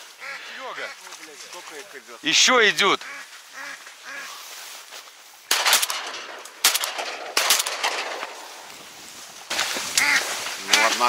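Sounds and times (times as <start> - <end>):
shotgun shots with echo: 5.5 - 8.5.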